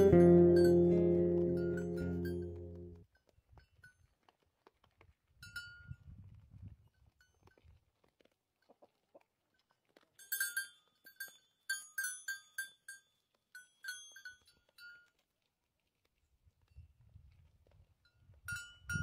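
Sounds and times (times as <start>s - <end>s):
metal collar bells clanking: 0.0s - 2.9s.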